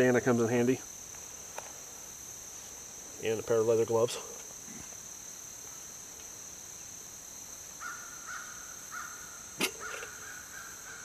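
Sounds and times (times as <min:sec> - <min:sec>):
crickets chirring: 0:00.0 - 0:11.0
bird calling: 0:07.8 - 0:11.0.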